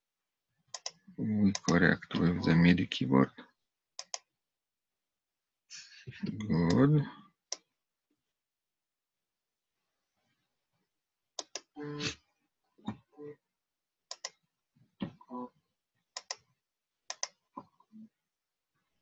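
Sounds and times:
computer mouse clicks: 0:00.7 - 0:01.8, 0:04.0 - 0:04.3, 0:11.4 - 0:11.7, 0:14.1 - 0:14.4, 0:16.1 - 0:16.4, 0:17.1 - 0:17.4.

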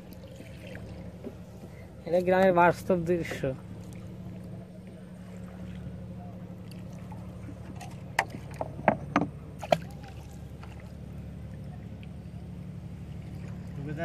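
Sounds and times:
low hum: 0:00.0 - 0:14.0
net knocking against canoe hull: 0:07.6 - 0:10.0.

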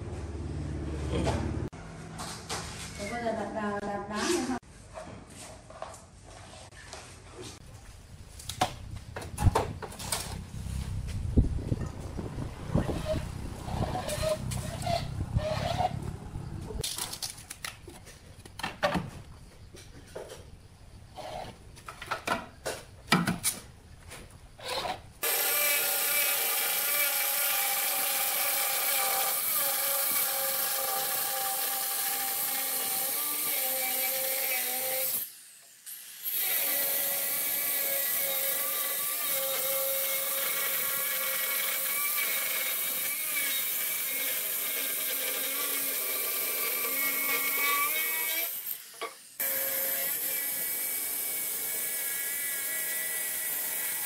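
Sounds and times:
stone cutter whining through stone: 0:24.6 - 0:54.0.

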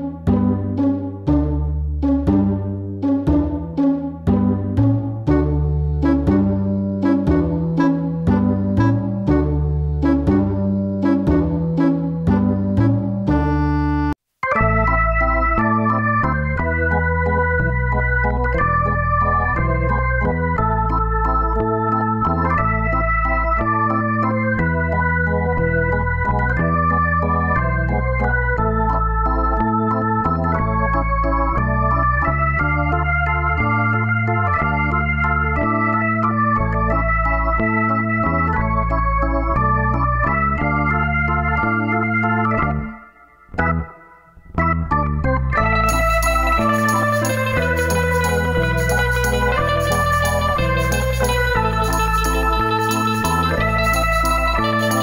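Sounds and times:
electronic organ keyboard tune: 0:00.0 - 0:55.0
stepping bass line: 0:00.0 - 0:55.0.

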